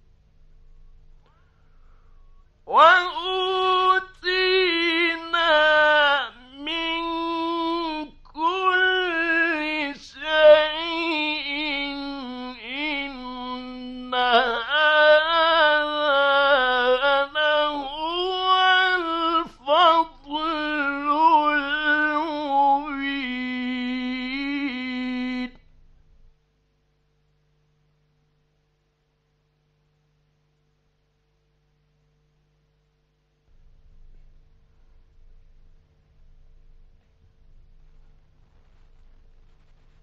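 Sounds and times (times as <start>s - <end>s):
man chanting recitation: 2.7s - 25.7s.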